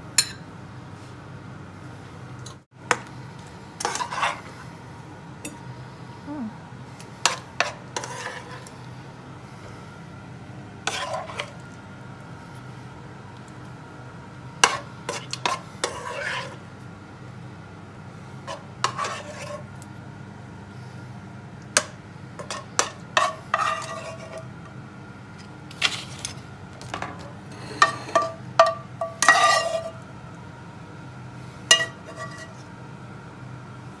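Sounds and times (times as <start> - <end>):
steady low hum: 0.0 - 34.0
metal spoon scraping a pan: 3.8 - 4.6, 7.2 - 8.7, 10.9 - 11.6, 14.6 - 16.6, 18.4 - 19.7, 22.4 - 24.5, 27.5 - 30.0, 31.7 - 32.7.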